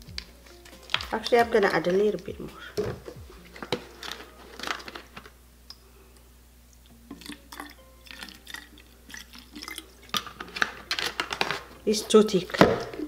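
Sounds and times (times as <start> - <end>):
liquid gurgling: 7.1 - 10.5.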